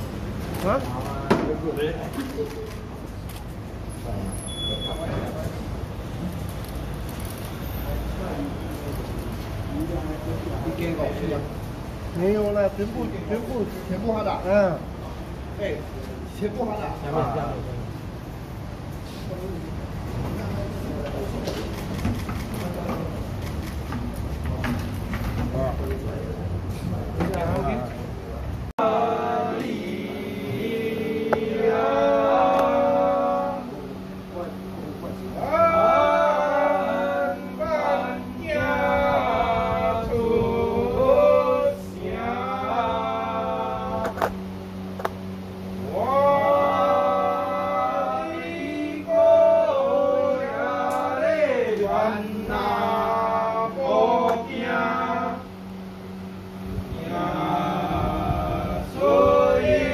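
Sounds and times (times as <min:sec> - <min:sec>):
steady low hum: 0:09.5 - 0:59.9
voices chanting: 0:28.8 - 0:34.6, 0:35.3 - 0:44.9, 0:45.8 - 0:55.6, 0:56.9 - 0:59.9.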